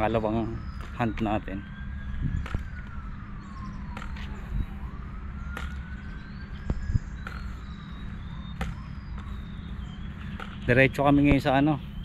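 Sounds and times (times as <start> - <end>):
siren wailing: 0.0 - 12.0.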